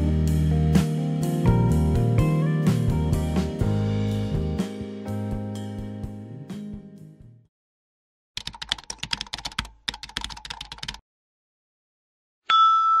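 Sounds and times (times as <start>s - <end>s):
keyboard typing: 8.4s - 11.0s
bright bell-like ding: 12.5s - 13.0s.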